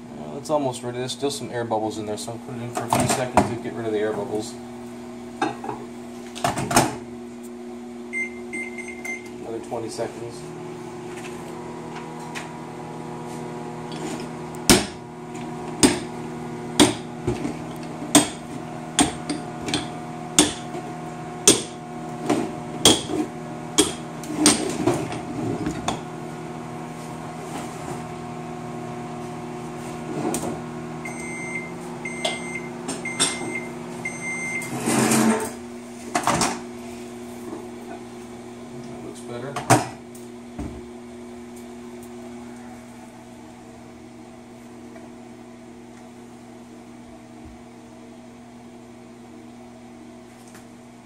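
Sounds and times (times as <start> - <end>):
microwave oven humming: 0.0 - 51.0
microwave timer beeps: 8.1 - 9.4, 31.0 - 34.8.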